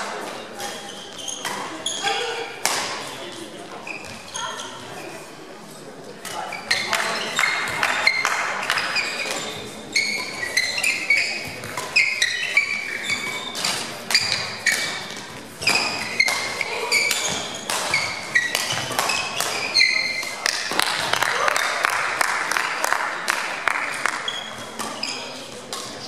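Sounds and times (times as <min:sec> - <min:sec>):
court shoes squeaking on floor: 0:00.2 - 0:05.3, 0:06.2 - 0:21.2, 0:23.9 - 0:26.0
rackets striking shuttlecock: 0:02.6 - 0:03.2, 0:06.2 - 0:21.7, 0:25.7 - 0:25.9.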